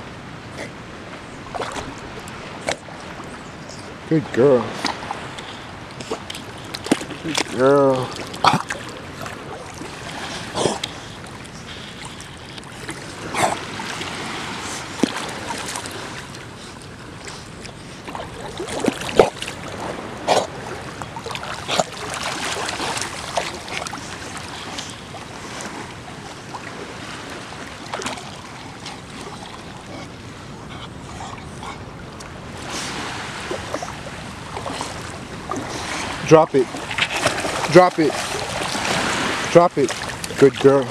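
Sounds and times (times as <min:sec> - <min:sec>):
water sloshing from swimming dogs: 0:00.0 - 0:40.9
loud splashes: 0:18.1 - 0:24.0, 0:34.5 - 0:40.9.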